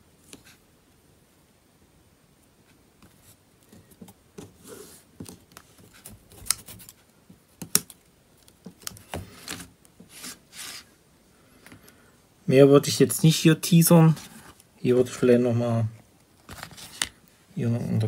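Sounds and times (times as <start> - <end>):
fingers handling adhesive tape: 5.2 - 10.4.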